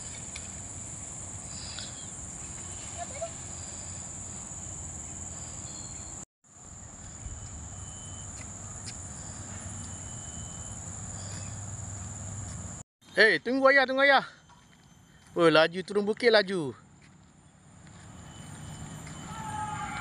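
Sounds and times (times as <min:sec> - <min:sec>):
high-pitched insect drone: 0:00.7 - 0:12.4.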